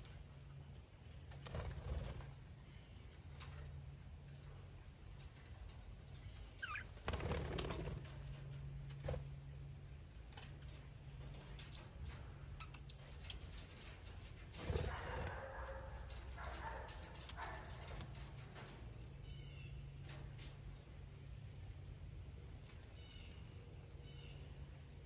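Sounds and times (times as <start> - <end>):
steady low hum: 0.0 - 25.0
budgerigars chirping and chattering: 6.6 - 7.0.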